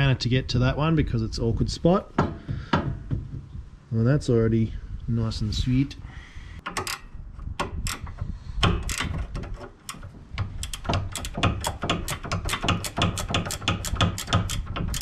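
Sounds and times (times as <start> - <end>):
ratcheting spanner clicking: 6.6 - 15.0.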